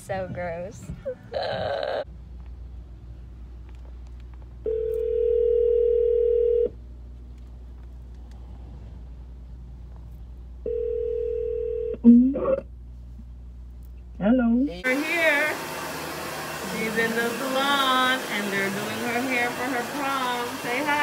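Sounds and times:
car rumble: 6.7s - 10.7s.

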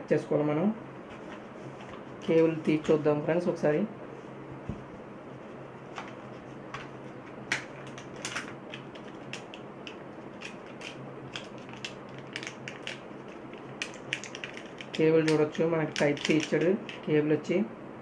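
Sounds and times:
cardboard and cable crinkling: 5.9s - 17.1s.

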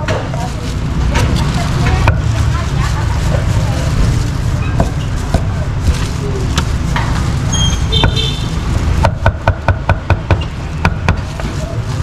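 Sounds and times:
low rumble of market and traffic: 0.0s - 12.0s
cleaver chopping meat: 4.8s - 6.7s.

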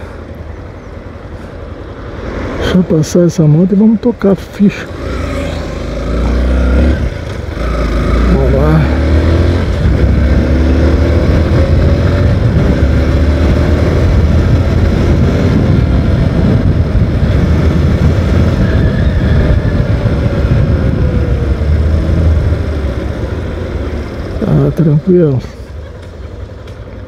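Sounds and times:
low wind rumble: 0.0s - 27.0s
motorcycle engine accelerating: 4.7s - 25.1s.

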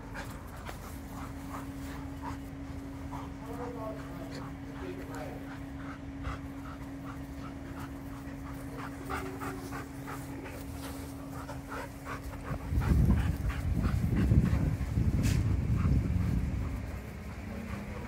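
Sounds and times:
dogs panting: 0.0s - 18.0s
loud low rumbling: 5.5s - 18.0s.

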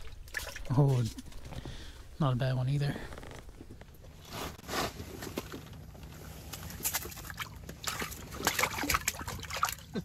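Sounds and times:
fish flapping and wet slaps: 6.5s - 9.8s.

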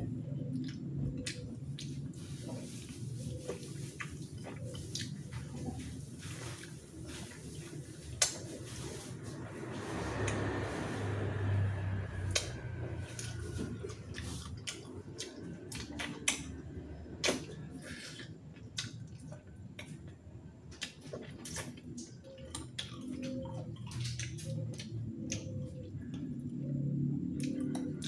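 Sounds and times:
man chewing: 0.0s - 9.0s, 9.7s - 28.0s
lips and teeth clicking: 27.4s - 28.0s.

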